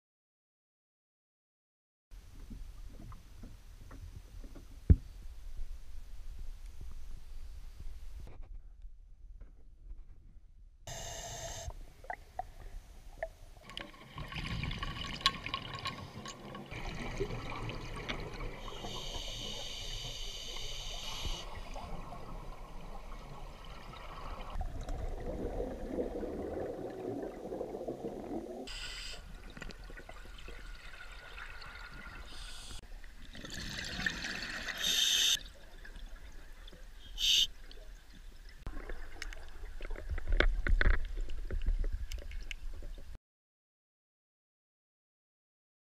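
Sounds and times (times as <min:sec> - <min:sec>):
bubbles rushing and gurgling: 0:13.6 - 0:20.0, 0:20.8 - 0:28.7, 0:29.3 - 0:36.4.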